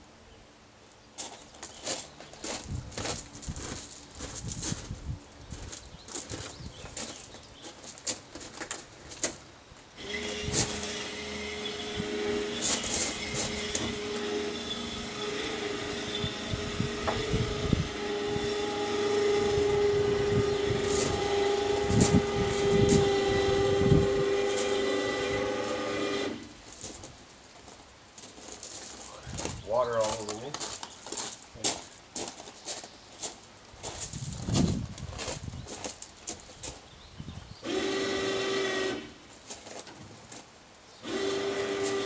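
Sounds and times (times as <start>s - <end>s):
electric winch motor running: 10.0s - 26.6s, 37.6s - 39.2s, 41.0s - 42.0s.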